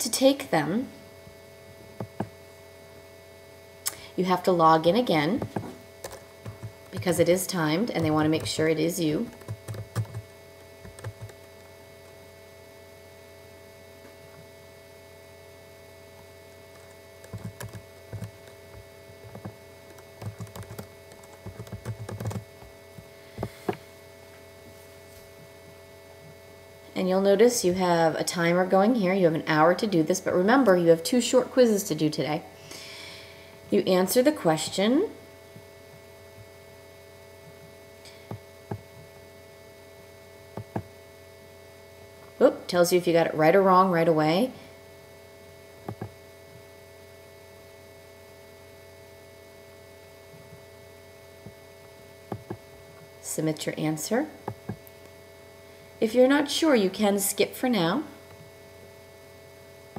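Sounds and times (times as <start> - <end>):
faint steady hum: 0.0 - 59.9
typing on computer keyboard: 5.4 - 7.2, 8.0 - 8.6, 9.3 - 11.5, 16.7 - 18.6, 19.2 - 22.4
computer mouse clicks: 40.6 - 40.9, 45.9 - 46.1, 52.3 - 52.6.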